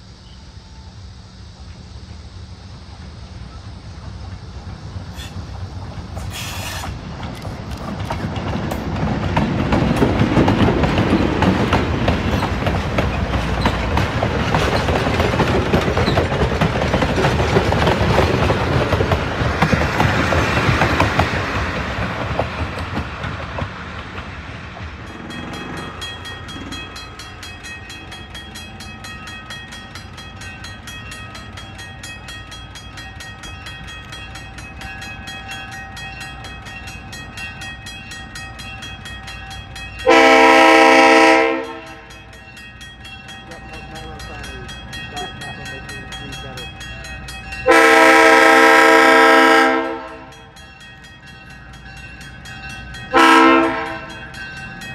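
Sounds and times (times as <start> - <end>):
train wheels clicking over rails: 1.5 - 54.9
crossing bell ringing: 24.9 - 54.9.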